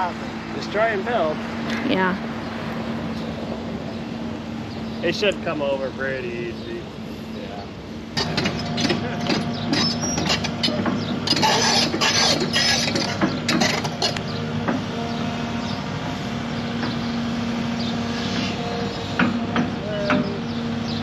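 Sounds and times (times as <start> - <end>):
excavator engine running: 0.0 - 21.0.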